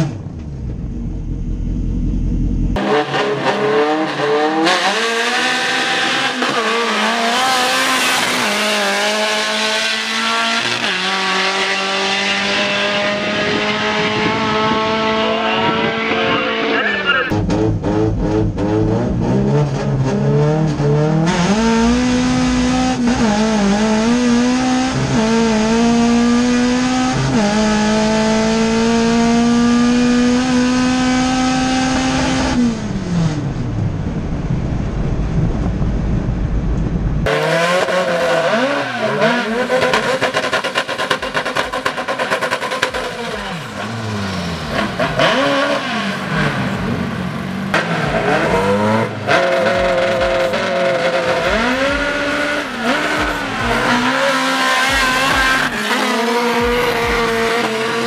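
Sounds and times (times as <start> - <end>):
race car engine accelerating: 0.0 - 34.3, 37.2 - 58.0
cars driving past revving: 37.2 - 58.0.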